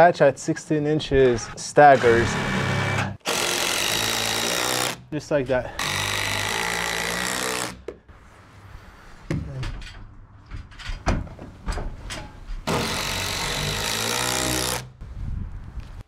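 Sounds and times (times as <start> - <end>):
impact driver driving screws: 2.0 - 5.0, 5.8 - 7.8, 12.7 - 14.9.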